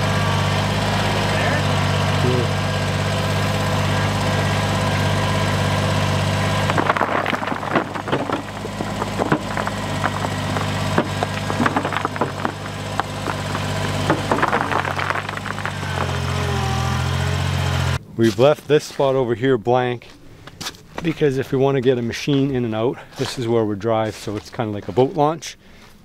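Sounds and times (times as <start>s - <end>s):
diesel tractor engine running: 0.0s - 18.1s
rocks clattering from loader bucket: 6.4s - 16.7s.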